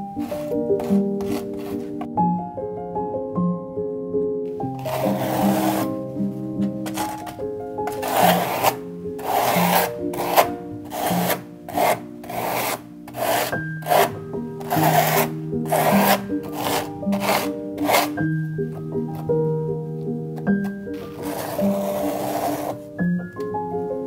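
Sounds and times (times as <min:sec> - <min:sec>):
plastic scraper rasping through paste: 0:00.2 - 0:02.1, 0:04.8 - 0:06.0, 0:06.8 - 0:18.2, 0:20.4 - 0:22.9.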